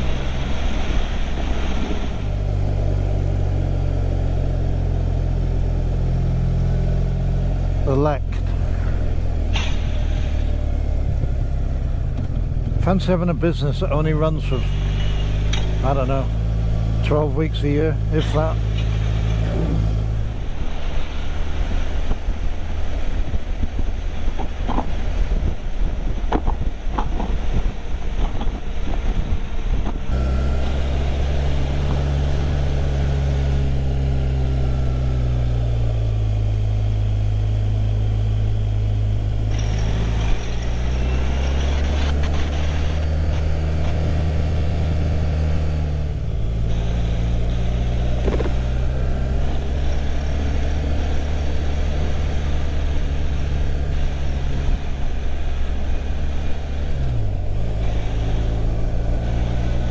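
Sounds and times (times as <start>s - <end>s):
wind and road noise: 0.0s - 59.9s
motorcycle engine running: 26.2s - 59.9s.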